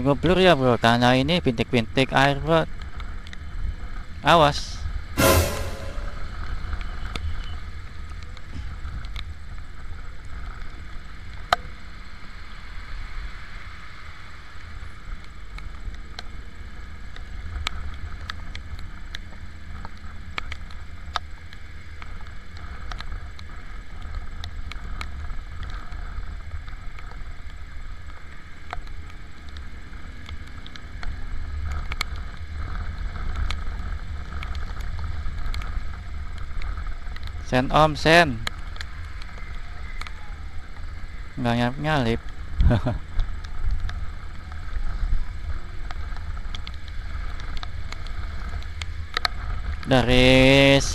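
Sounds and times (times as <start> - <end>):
road noise: 7.8 - 50.9
wind rumble on microphone: 14.0 - 50.9.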